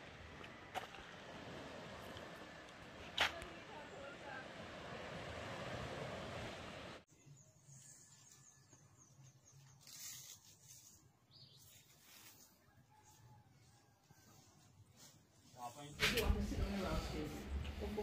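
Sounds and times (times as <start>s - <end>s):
rushing outdoor noise: 0.0s - 7.0s.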